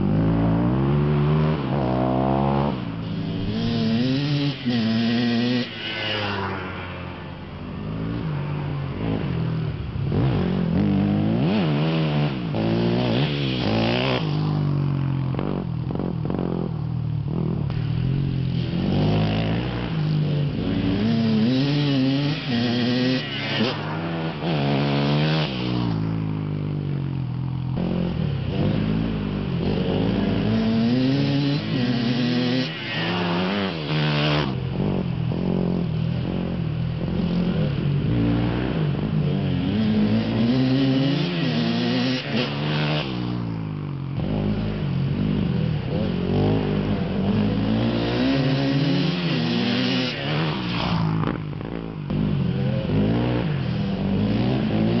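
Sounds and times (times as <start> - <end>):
steady low drone: 0.0 - 13.1, 14.4 - 21.6
dirt bike engines revving: 0.0 - 55.0.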